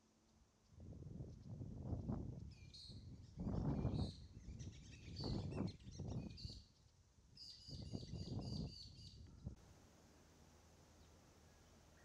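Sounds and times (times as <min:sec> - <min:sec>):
faint steady hiss: 0:09.5 - 0:12.0.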